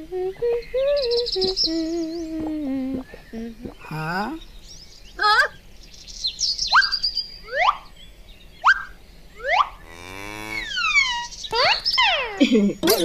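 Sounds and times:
rising whistle-like chirps: 6.7 - 7.9, 8.6 - 9.8
falling whistle glides: 8.7 - 9.8.

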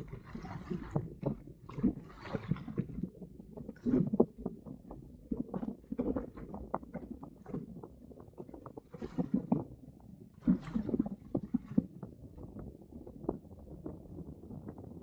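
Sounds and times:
water slapping against boat hull: 0.0 - 7.8, 8.4 - 9.7, 10.4 - 12.0.

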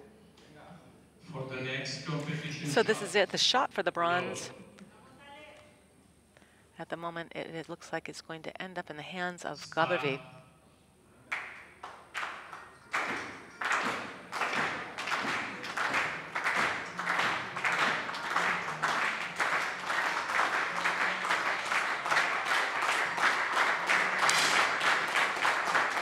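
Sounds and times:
crowd clapping in rhythm: 11.3 - 26.0.

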